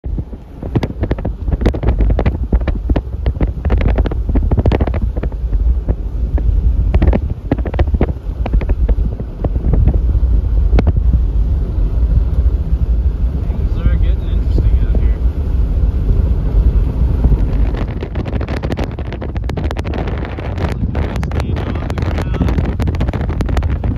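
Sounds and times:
strong wind on microphone: 0.0s - 23.9s.

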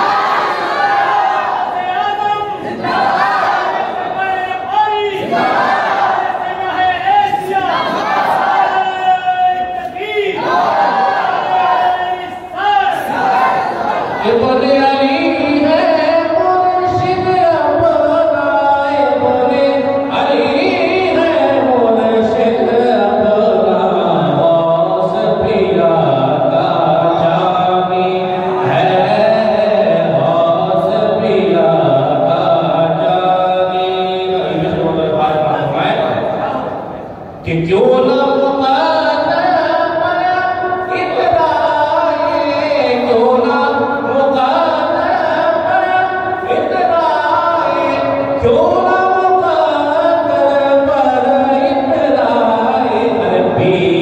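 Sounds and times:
man singing into a microphone: 14.2s - 36.3s, 37.4s - 54.0s.

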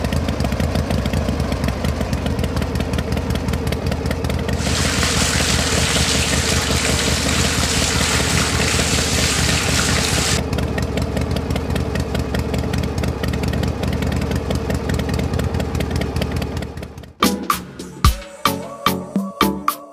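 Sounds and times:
small engine ticking rattle: 0.0s - 4.9s, 10.2s - 17.2s
liquid pouring into brass bowl: 4.6s - 10.4s.

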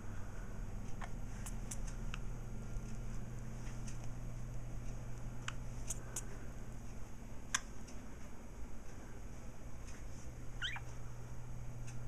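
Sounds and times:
steady low hum: 0.0s - 12.0s
budgerigars chirping: 10.6s - 10.9s.

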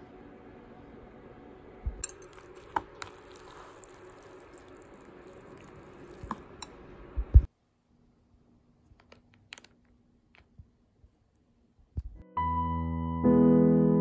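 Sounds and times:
metal spoon clinking on bowl: 2.0s - 2.8s.

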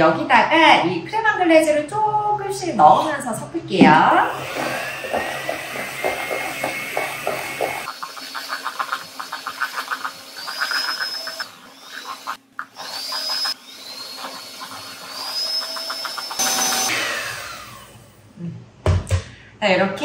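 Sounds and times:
electric hand mixer whirring: 4.0s - 18.2s.

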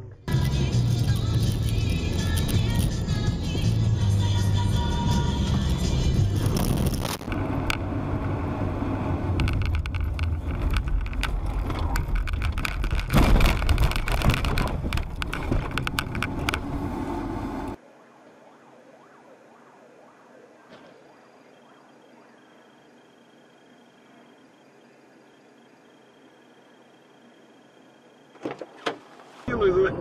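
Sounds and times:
car engine: 0.0s - 30.0s
road noise: 0.2s - 30.0s
sharp knocks and rattles: 9.4s - 16.7s.

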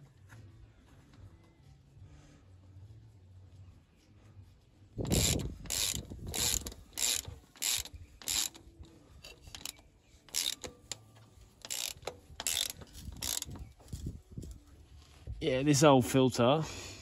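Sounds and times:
ratchet wrench clicking: 5.0s - 13.7s.

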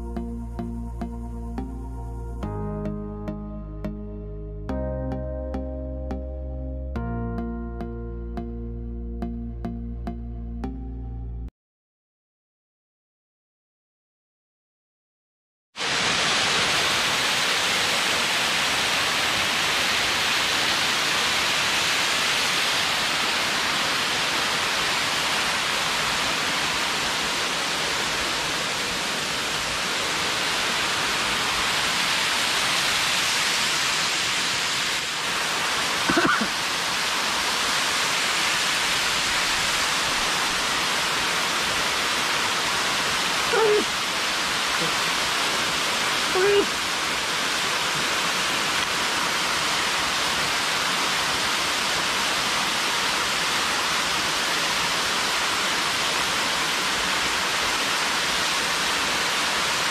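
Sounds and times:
waterfall rushing onto boulders: 15.8s - 59.9s.

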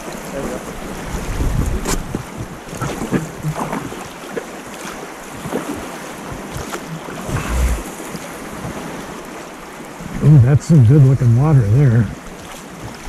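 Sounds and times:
river water rushing and splashing: 0.0s - 13.0s
wind buffeting microphone: 0.8s - 3.6s, 6.3s - 9.0s.

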